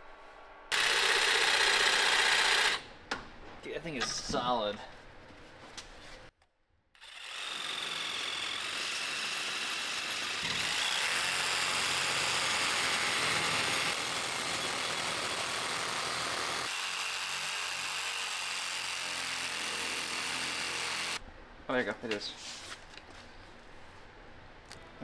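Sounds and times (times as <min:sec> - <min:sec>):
reciprocating saw cutting plastic: 0:07.0 - 0:21.2.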